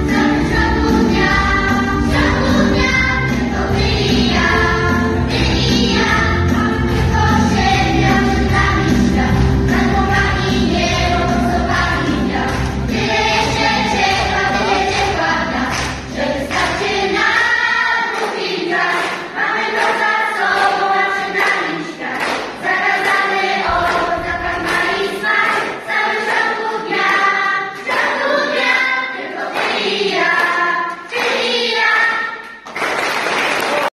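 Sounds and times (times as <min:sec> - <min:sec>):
low accompaniment: 0:00.0 - 0:17.6
mixed choir singing: 0:00.0 - 0:32.6.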